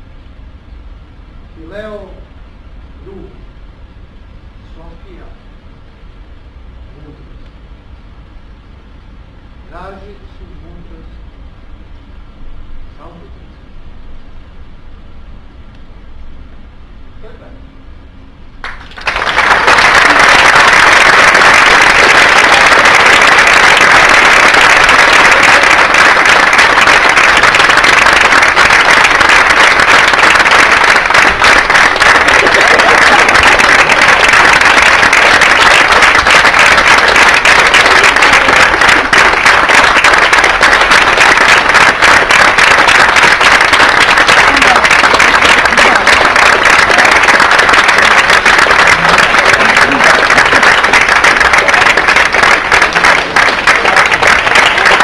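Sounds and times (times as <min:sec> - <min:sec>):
audience applauding: 0:18.6 - 0:55.0.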